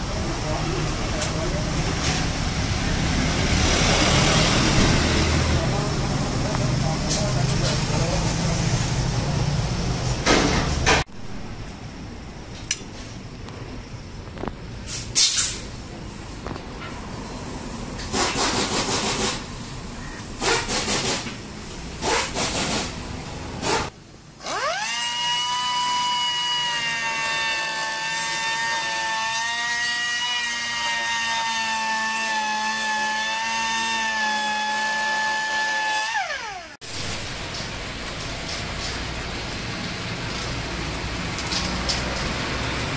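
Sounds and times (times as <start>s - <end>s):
short noise bursts: 17.4s - 23.9s
rotary cutting tool whining: 24.4s - 37.1s.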